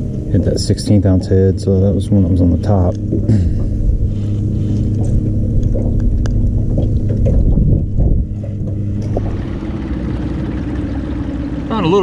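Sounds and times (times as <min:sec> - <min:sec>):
boat motor humming: 0:00.0 - 0:12.0
wind on microphone: 0:03.1 - 0:09.6.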